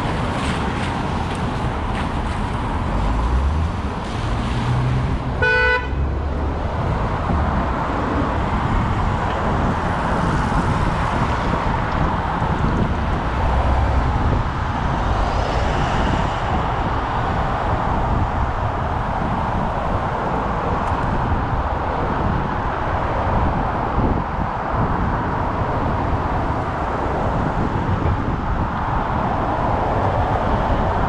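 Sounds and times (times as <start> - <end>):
city road traffic: 0.0 - 31.0
car horn toot: 5.4 - 6.0.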